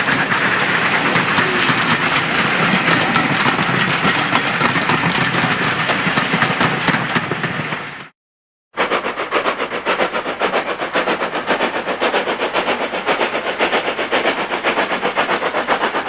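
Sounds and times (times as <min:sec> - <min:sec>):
train coaches rumbling past: 0:00.0 - 0:08.1
train wheels clicking over rail joints: 0:00.0 - 0:08.1.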